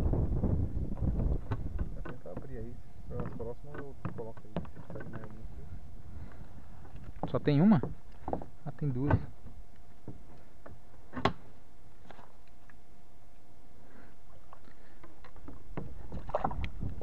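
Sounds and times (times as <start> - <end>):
steady low rumble: 0.0 - 4.0.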